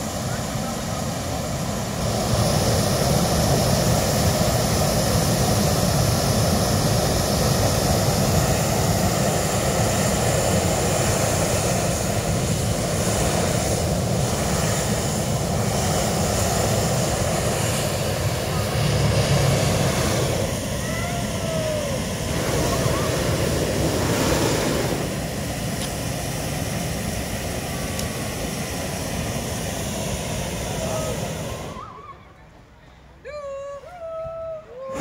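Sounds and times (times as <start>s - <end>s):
propane burner blast: 0.0s - 32.1s.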